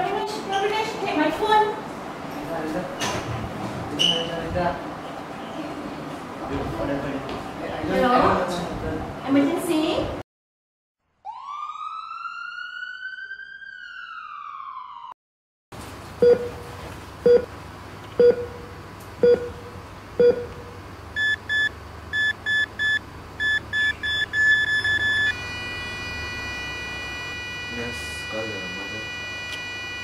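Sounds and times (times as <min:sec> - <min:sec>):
emergency siren wail: 0:11.2 - 0:15.2, 0:24.4 - 0:30.0
heart monitor beeps: 0:16.2 - 0:16.6, 0:17.2 - 0:17.5, 0:18.2 - 0:18.6, 0:19.2 - 0:19.6, 0:20.2 - 0:20.6, 0:21.2 - 0:30.0
flatline tone: 0:21.2 - 0:30.0.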